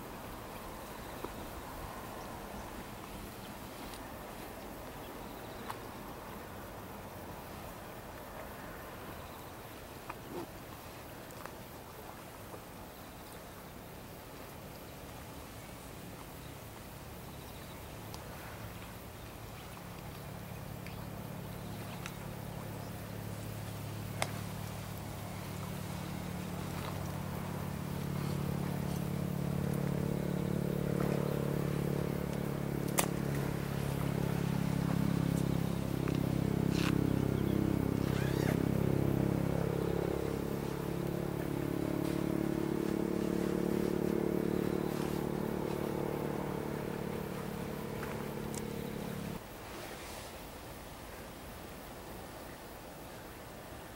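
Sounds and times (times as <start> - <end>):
distant engine droning: 20.4 - 49.4.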